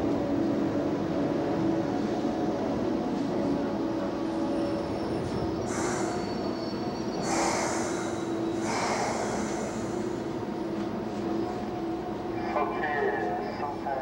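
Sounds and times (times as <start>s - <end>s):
train humming: 0.0s - 14.0s
compressed air hisses: 5.7s - 6.2s, 7.2s - 10.1s.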